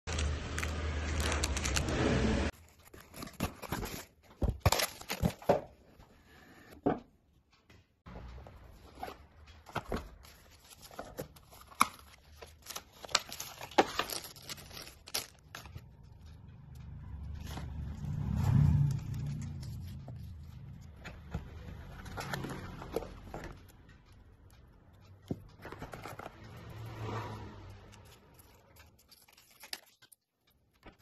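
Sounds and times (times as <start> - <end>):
plastic wrap crinkling: 0.1 - 2.0, 10.3 - 15.8
loud steady rumble: 15.5 - 24.2.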